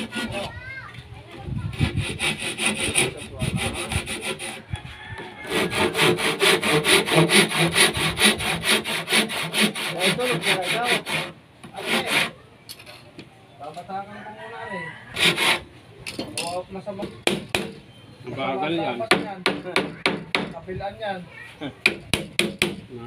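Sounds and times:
handsaw cutting wood: 0:00.0 - 0:00.5, 0:01.7 - 0:04.6, 0:05.4 - 0:12.4, 0:15.1 - 0:15.7.

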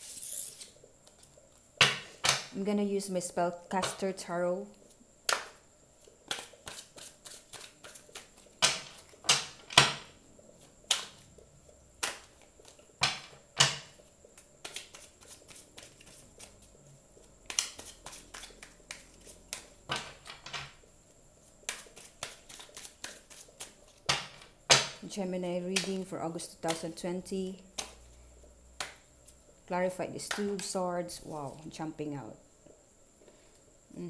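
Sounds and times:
cards being shuffled: 0:06.3 - 0:09.1, 0:14.4 - 0:16.8, 0:17.4 - 0:20.3, 0:21.6 - 0:24.1.

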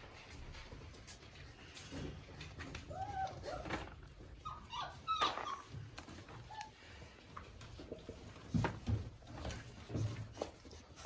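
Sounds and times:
puppies whining: 0:02.5 - 0:07.1.

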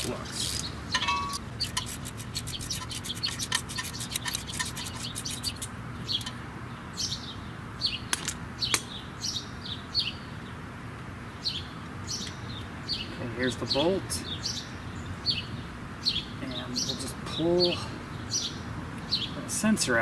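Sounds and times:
birds chirping: 0:00.0 - 0:20.0
ratchet clicking quickly: 0:01.6 - 0:06.3.

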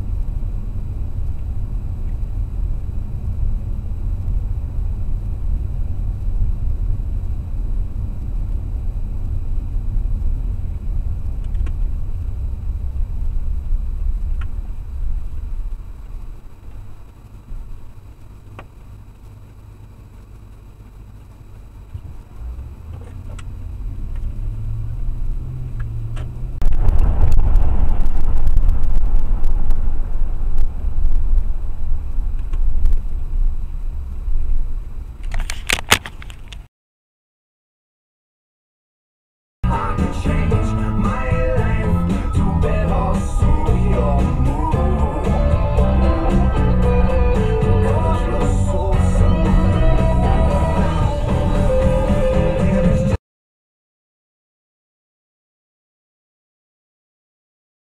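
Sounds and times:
car road and engine rumble: 0:00.0 - 0:36.7, 0:39.6 - 0:53.2
crackles: 0:00.0 - 0:36.7.

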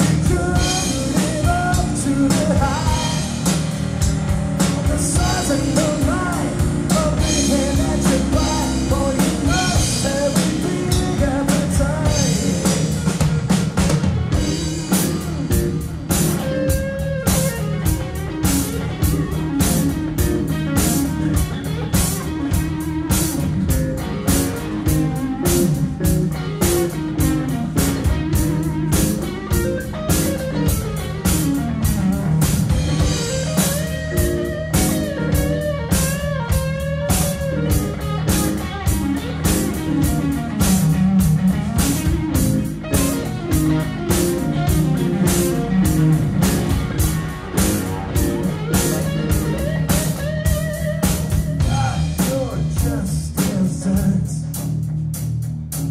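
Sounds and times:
bass guitar: 0:00.0 - 0:55.9
drum kit beat: 0:00.0 - 0:55.9
electric guitar: 0:00.0 - 0:55.9.

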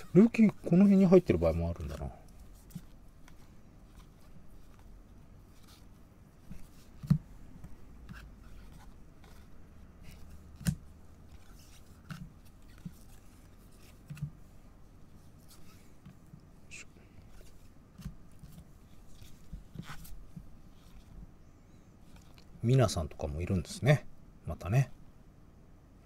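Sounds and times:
cards rubbing together: 0:07.6 - 0:14.4.

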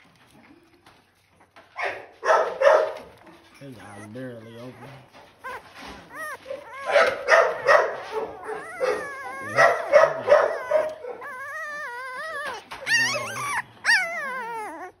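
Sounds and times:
puppies whining and squealing: 0:03.4 - 0:15.0
puppy yelps: 0:03.8 - 0:15.0.

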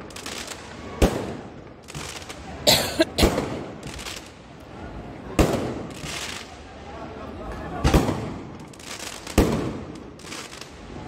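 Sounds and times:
firework hissing crackle: 0:00.0 - 0:02.6, 0:03.3 - 0:04.7, 0:05.3 - 0:06.8, 0:07.9 - 0:11.0.

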